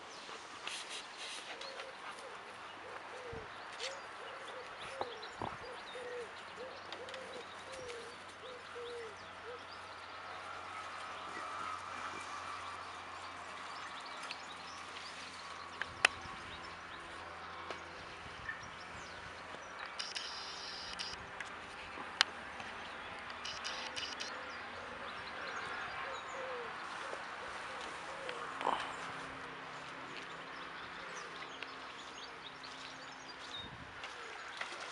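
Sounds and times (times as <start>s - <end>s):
faint birdsong: 0.0s - 34.9s
sharp clicks: 19.8s - 21.2s, 23.2s - 24.3s
high chirping: 20.0s - 21.2s, 23.4s - 24.3s.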